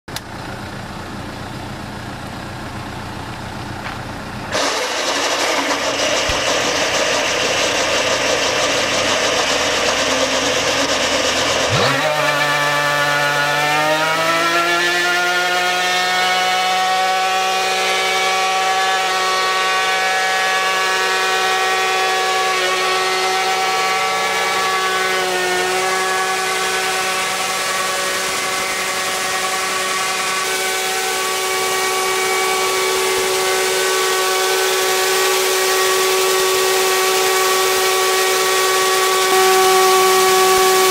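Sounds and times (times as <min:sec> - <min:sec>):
machine motor humming: 0:22.5 - 0:40.9.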